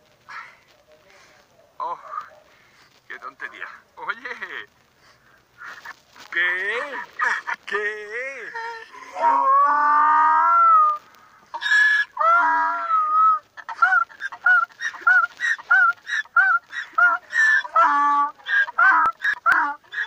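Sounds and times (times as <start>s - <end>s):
donkey braying: 8.4s - 20.0s.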